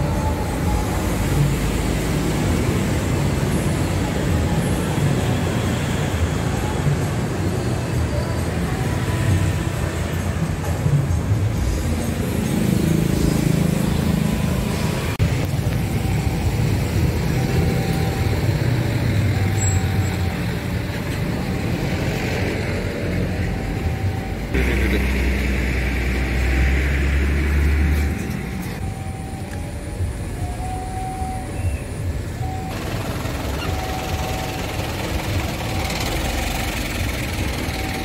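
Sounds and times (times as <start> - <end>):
cars and motorcycles passing: 0.0 - 30.8, 31.4 - 38.0
low engine hum: 14.3 - 38.0.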